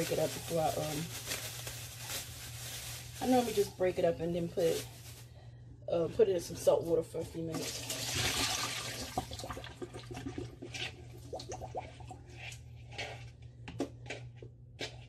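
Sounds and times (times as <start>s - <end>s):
tap running water: 7.6s - 12.0s.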